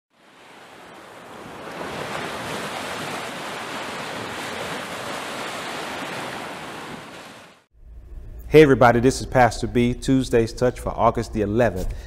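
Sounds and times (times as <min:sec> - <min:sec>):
ocean surf washing onto beach: 0:00.1 - 0:07.7.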